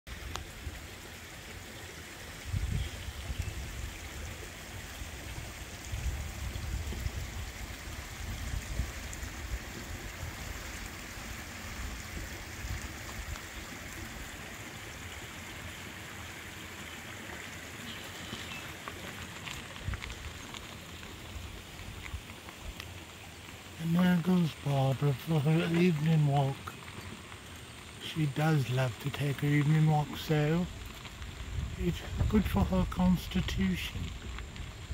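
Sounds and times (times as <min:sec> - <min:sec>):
creek running over stones: 0:00.0 - 0:34.9
low rumbling bumps: 0:29.4 - 0:34.9.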